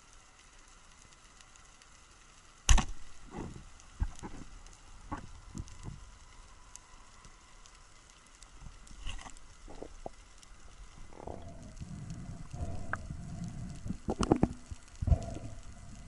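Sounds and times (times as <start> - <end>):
faint underwater crackling: 0.0 - 16.0
low underwater rumble: 9.5 - 16.0.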